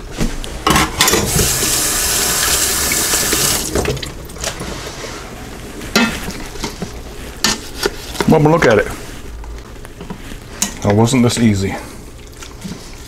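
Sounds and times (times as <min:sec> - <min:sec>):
kitchen tap running: 0:01.2 - 0:04.4.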